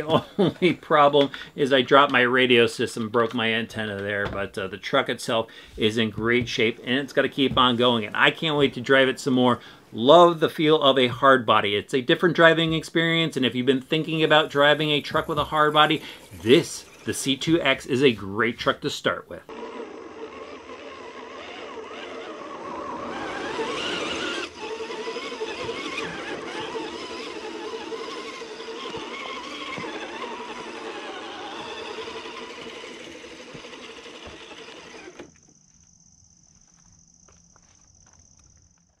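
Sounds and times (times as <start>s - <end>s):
electric motor and gears whining: 13.9s - 18.6s, 19.4s - 36.0s.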